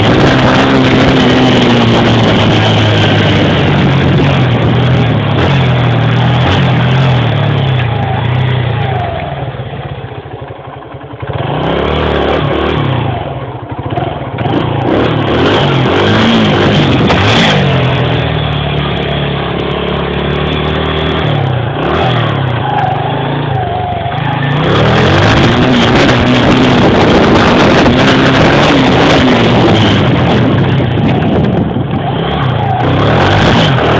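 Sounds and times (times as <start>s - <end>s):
wind rush on microphone: 0.0s - 8.1s, 24.5s - 33.9s
dirt bike engine revving: 0.0s - 33.9s.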